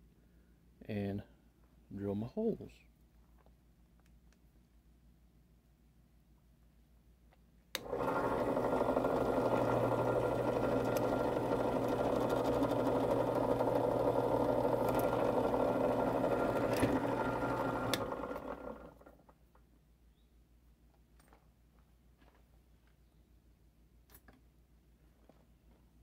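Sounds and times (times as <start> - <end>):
drill press motor humming: 7.8 - 19.3.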